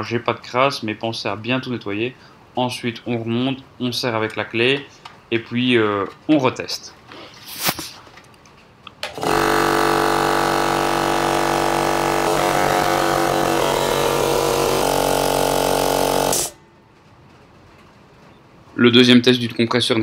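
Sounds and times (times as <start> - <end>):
piston air compressor running: 9.0 - 16.6.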